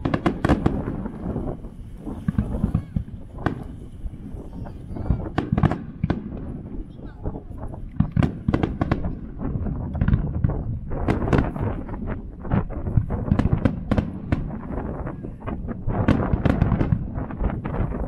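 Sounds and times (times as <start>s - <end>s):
firework shells bursting: 0.0s - 6.7s
low rumble: 0.0s - 18.0s.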